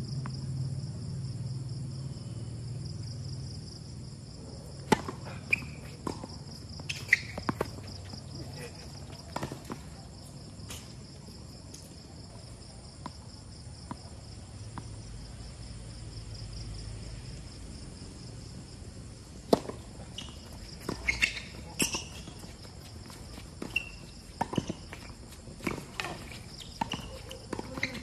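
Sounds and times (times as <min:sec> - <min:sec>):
night insects chirring: 0:00.0 - 0:28.0
racquet hitting tennis ball: 0:04.8 - 0:09.8, 0:19.5 - 0:28.0
tennis ball bouncing: 0:04.8 - 0:10.8, 0:19.5 - 0:28.0.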